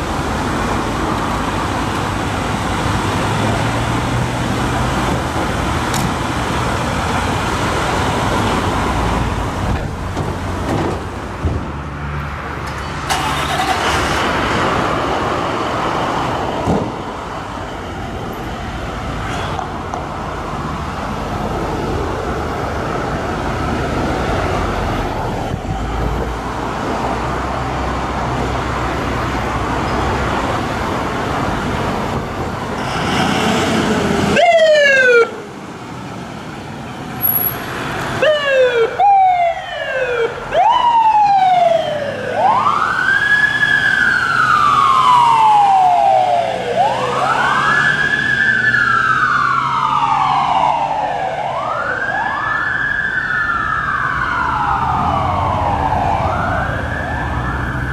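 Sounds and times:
ambulance engine running: 12.4s - 33.0s, 34.2s - 57.9s.

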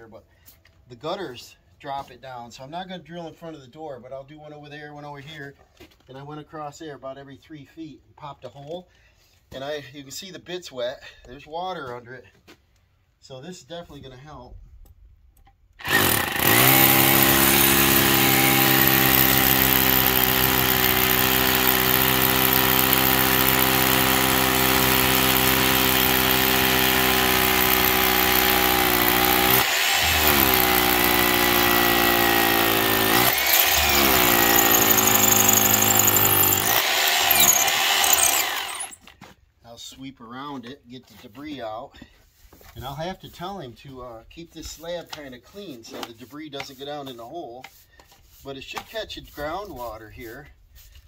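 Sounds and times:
rotary hammer drilling into concrete: 15.8s - 39.1s.

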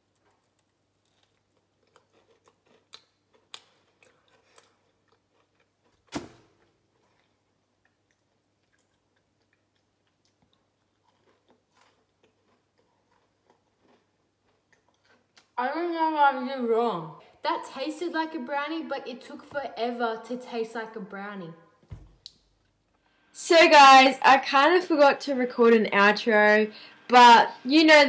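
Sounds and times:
person chewing: 0.0s - 15.6s.

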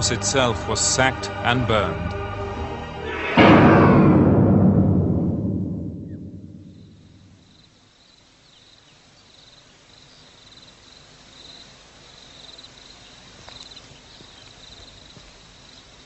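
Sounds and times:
low steady hiss: 6.2s - 16.0s
insects chirping: 6.5s - 16.0s.

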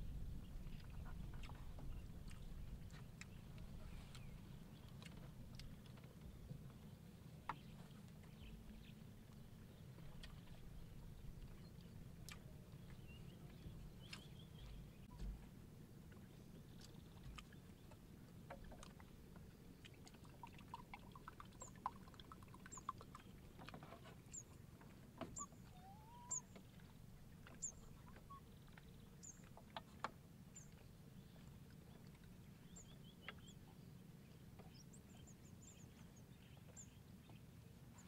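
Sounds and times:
bird chirping: 25.2s - 26.7s.

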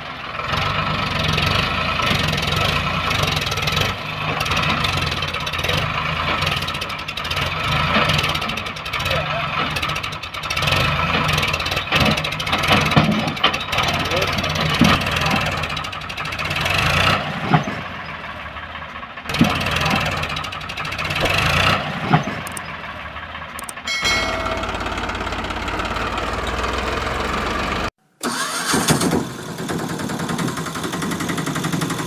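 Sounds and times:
engine running: 0.0s - 32.0s
engine starting up: 19.3s - 32.0s.

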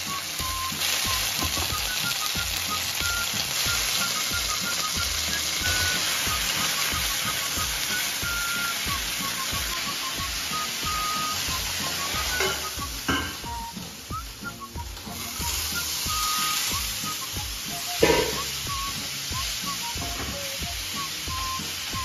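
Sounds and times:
chicken sizzling in a pan: 0.0s - 22.0s
light background music: 0.0s - 22.0s
chopsticks knocking against pan: 18.0s - 18.5s.

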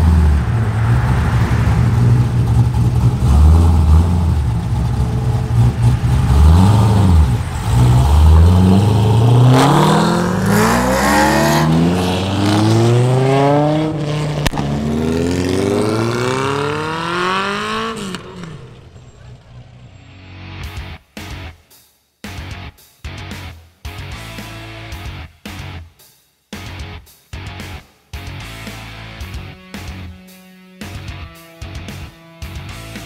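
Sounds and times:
sports car engine rumbling and accelerating: 0.0s - 20.8s.

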